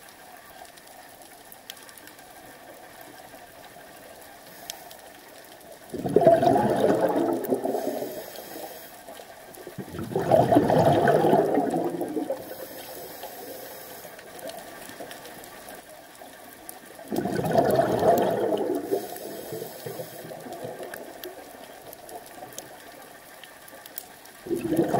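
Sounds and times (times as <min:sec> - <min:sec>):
regulator inhale hiss: 0:04.4 - 0:05.3, 0:07.6 - 0:09.3, 0:12.4 - 0:14.5, 0:18.8 - 0:20.5
exhaled bubbles underwater: 0:05.8 - 0:08.7, 0:09.5 - 0:13.6, 0:16.8 - 0:23.2, 0:24.3 - 0:24.9.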